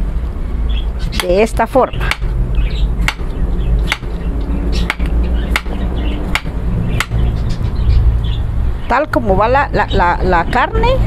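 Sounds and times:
steady low hum: 0.0 - 9.4
knife chopping on cutting board: 2.0 - 2.3, 3.0 - 3.3, 3.9 - 4.1, 4.9 - 7.2.

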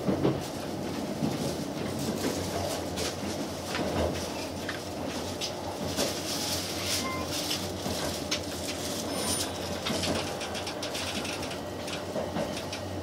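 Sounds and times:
train car low hum: 0.0 - 13.0.

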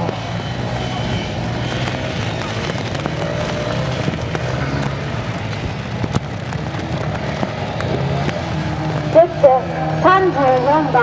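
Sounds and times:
motorcycle engines revving: 0.0 - 11.0
sharp cracks: 1.7 - 9.3.

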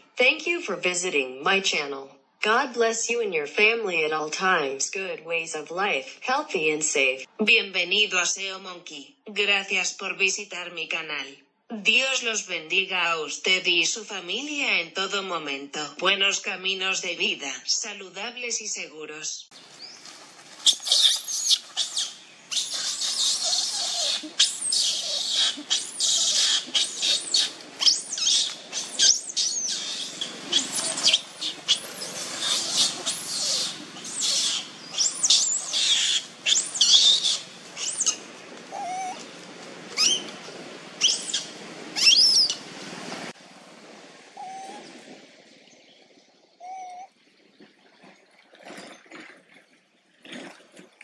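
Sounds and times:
baby monkey screaming: 20.6 - 39.2, 40.0 - 40.3, 41.0 - 42.6.

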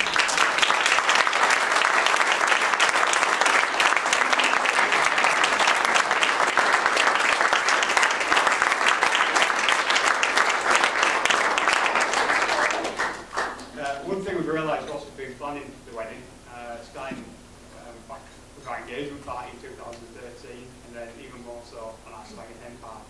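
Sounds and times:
crowd applauding: 0.0 - 14.2.

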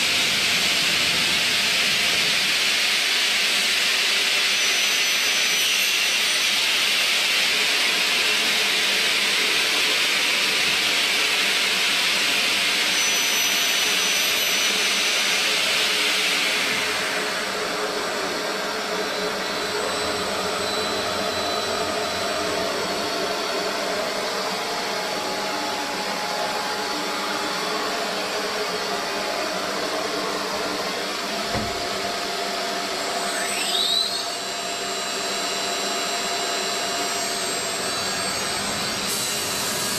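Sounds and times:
saw hissing: 12.9 - 34.6
whine sweeping in pitch: 16.4 - 39.1
machine hum: 19.4 - 33.7.

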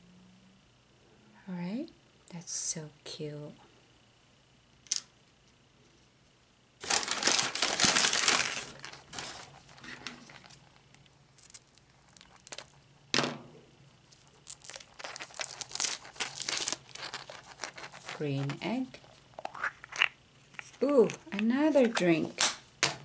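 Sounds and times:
paper bag rustling: 6.8 - 10.7, 14.1 - 18.5
plastic crinkling: 6.8 - 12.8, 14.0 - 22.0.

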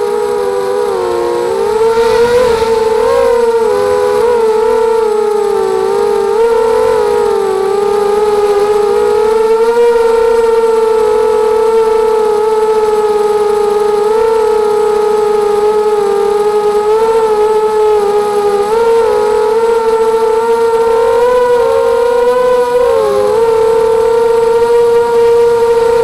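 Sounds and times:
quadcopter motors whining: 0.0 - 26.0.

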